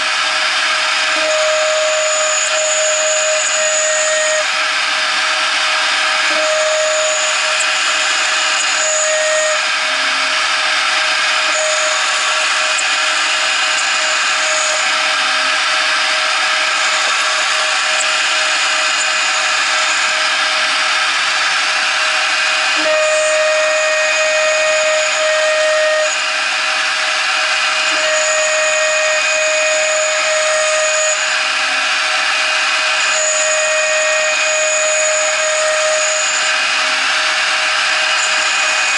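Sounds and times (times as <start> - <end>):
hissing metal cutting noise: 0.0 - 38.9
router spindle tone: 0.0 - 38.9.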